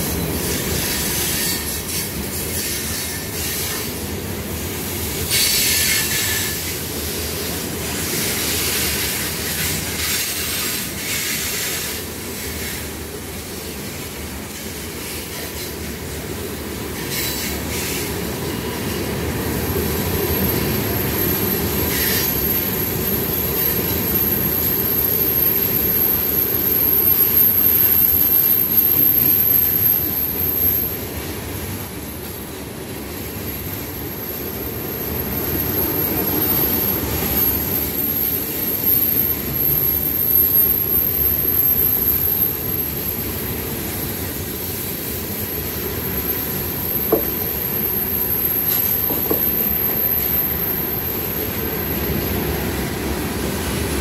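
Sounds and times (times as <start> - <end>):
freight train wheels rumbling: 0.0 - 54.0.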